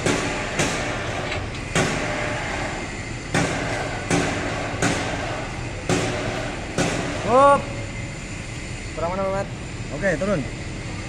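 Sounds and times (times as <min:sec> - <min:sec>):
workshop noise: 0:00.0 - 0:11.0
sharp ringing knocks: 0:03.3 - 0:07.3.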